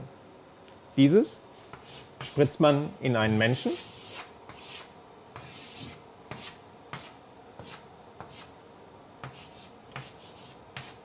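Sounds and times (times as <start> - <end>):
chalk strokes on blackboard: 1.5 - 2.6, 3.6 - 8.6, 9.2 - 11.0.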